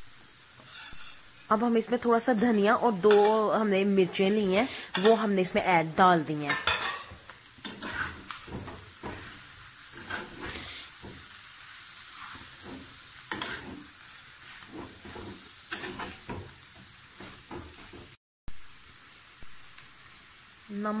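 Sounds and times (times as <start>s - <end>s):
oil sizzling: 0.0s - 21.0s
metal spatula scraping pan: 0.6s - 1.5s, 6.5s - 11.3s, 12.1s - 16.5s.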